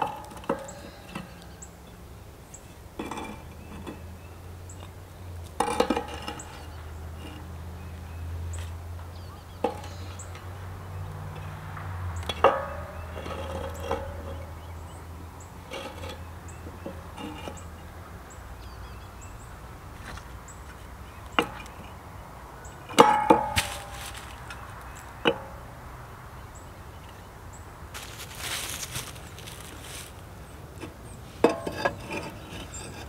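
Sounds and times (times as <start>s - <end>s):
clay bricks clacking on concrete: 4.8s - 7.5s.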